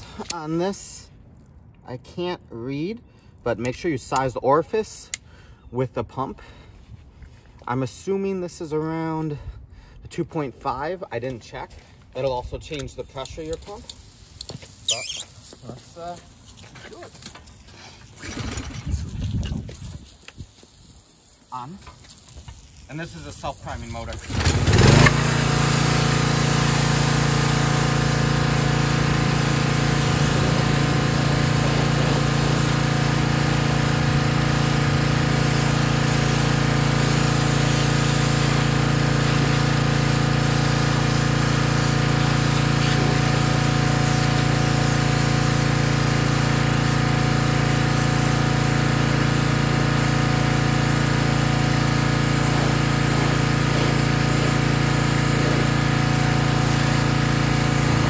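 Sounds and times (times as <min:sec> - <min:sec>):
high-pressure water jet spraying: 0:13.2 - 0:17.3, 0:18.2 - 0:58.0
small gasoline engine running: 0:18.2 - 0:18.9, 0:24.2 - 0:58.0.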